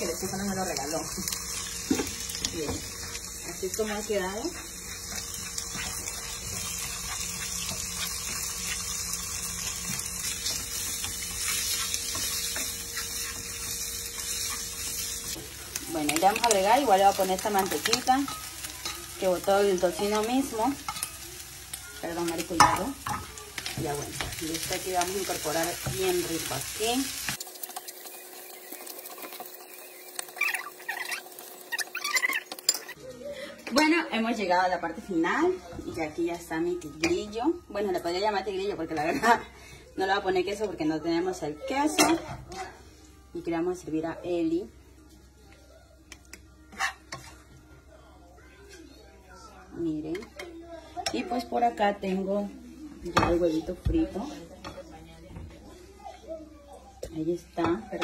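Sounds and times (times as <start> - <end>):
bacon sizzling in a frying pan: 0.0 - 33.0, 49.7 - 58.0
spatula scraping a pan: 1.2 - 21.2, 46.7 - 47.5.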